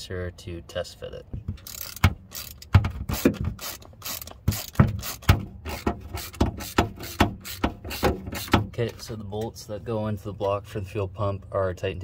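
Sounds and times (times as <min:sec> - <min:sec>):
socket ratchet clicking: 0:01.6 - 0:08.6.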